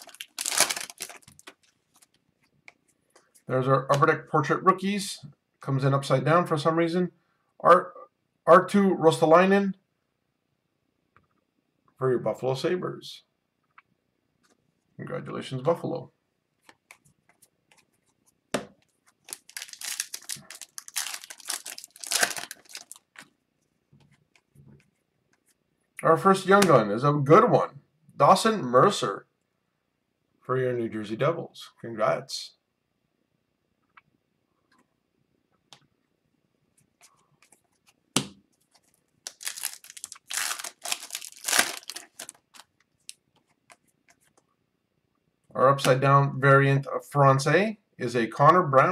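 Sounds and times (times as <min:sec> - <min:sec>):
plastic wrapper tearing and crinkling: 0:00.0 - 0:02.1, 0:19.2 - 0:23.3, 0:38.7 - 0:43.2.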